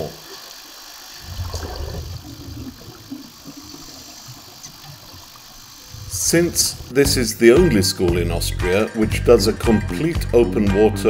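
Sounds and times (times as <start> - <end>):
underwater bubbling: 0.0 - 7.1
underwater low rumble: 1.2 - 7.4.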